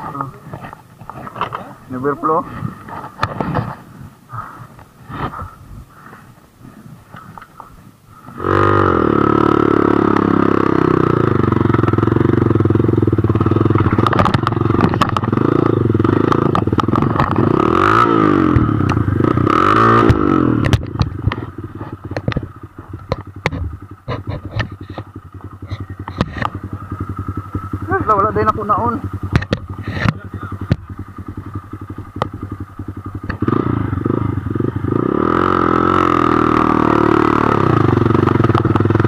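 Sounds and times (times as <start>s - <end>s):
bike rattling and clattering: 0.0s - 39.0s
dirt bike engine revving: 8.2s - 39.0s.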